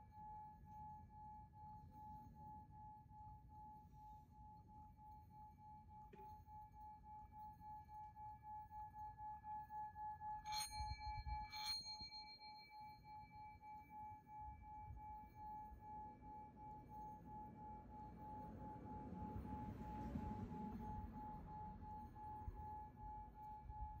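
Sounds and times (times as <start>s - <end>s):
steady pulsing tone: 6.5s - 24.0s.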